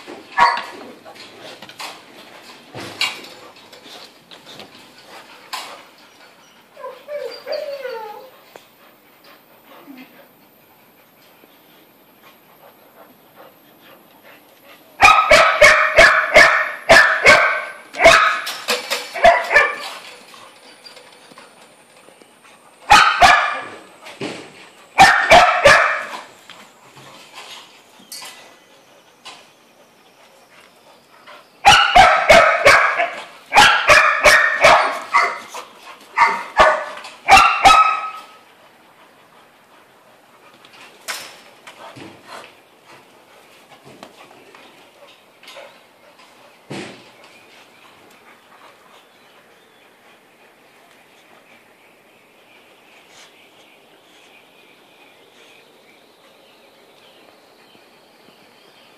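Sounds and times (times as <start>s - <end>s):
dog barking: 0.4s - 0.7s, 15.0s - 18.5s, 19.2s - 19.8s, 22.9s - 23.7s, 25.0s - 26.3s, 31.6s - 35.4s, 36.2s - 38.4s.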